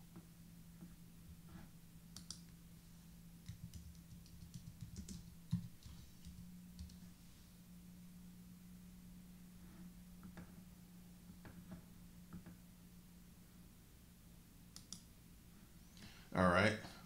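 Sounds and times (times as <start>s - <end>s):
steady low hum: 0.0s - 17.0s
keyboard typing: 2.2s - 2.4s, 3.4s - 7.0s, 14.7s - 15.1s.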